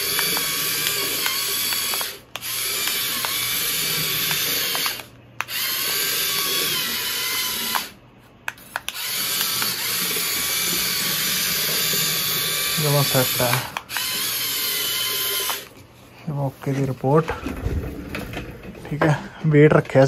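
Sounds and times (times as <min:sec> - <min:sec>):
toy tractor motor whining: 0:00.0 - 0:08.0, 0:08.6 - 0:15.8.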